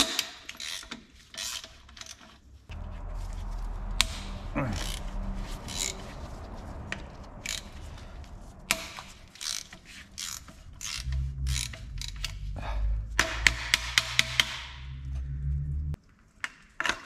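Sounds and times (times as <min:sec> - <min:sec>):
low hum: 0:02.7 - 0:16.0.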